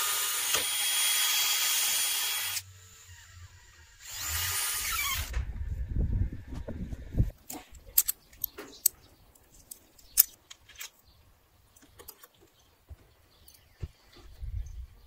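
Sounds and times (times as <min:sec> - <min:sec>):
metal hinge clicking and clinking: 0:07.5 - 0:09.0.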